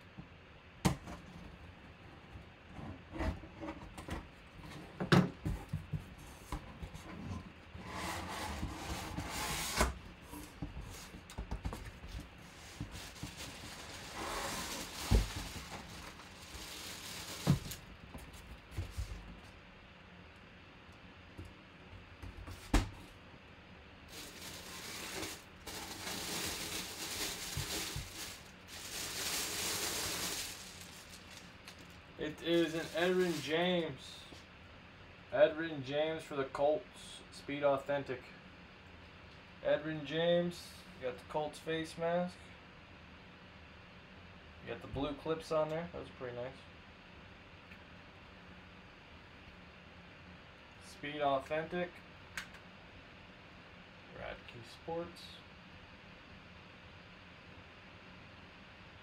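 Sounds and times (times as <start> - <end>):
cardboard flaps rubbing and knocking: 8.0 - 16.1
plastic bag rustling: 11.9 - 19.1, 24.1 - 33.8.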